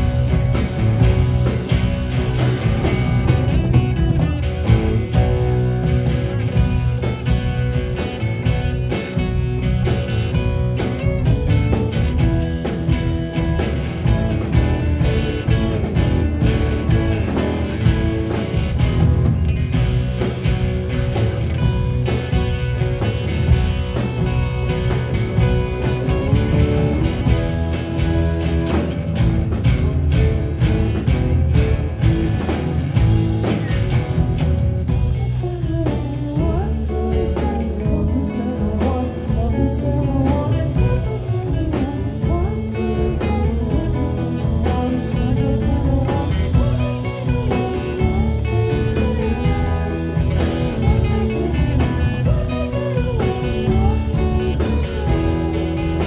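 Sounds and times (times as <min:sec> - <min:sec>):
live rock band playing: 0:00.0 - 0:56.0.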